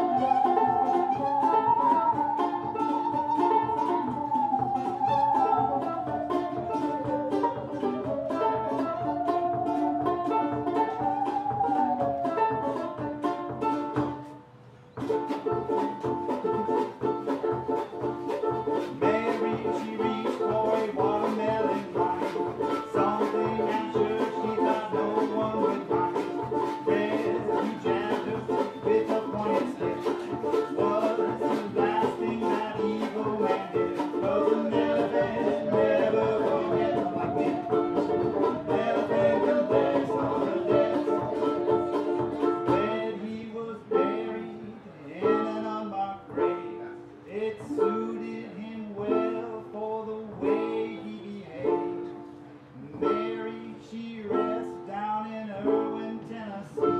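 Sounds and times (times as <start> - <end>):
wavering melody line: 0.0 - 13.1
acoustic string band playing: 0.0 - 56.9
banjo strumming: 0.0 - 56.9.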